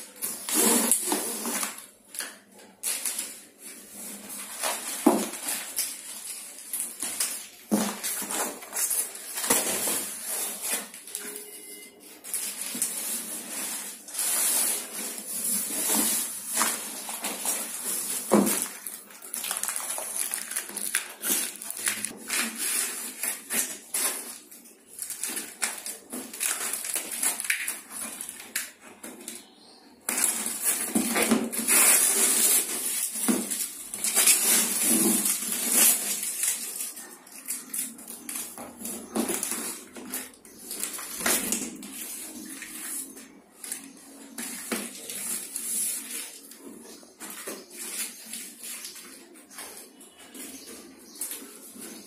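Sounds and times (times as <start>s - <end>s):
cardboard scraping and rustling: 0.1s - 1.9s, 3.7s - 11.5s, 12.2s - 19.7s, 30.1s - 36.8s.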